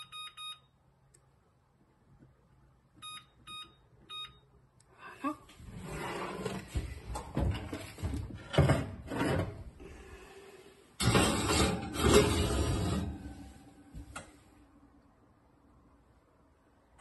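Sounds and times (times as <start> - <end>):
oven rack knocks and scrapes: 7.2 - 9.6
dish scraping on metal rack: 8.4 - 9.6, 11.0 - 13.6.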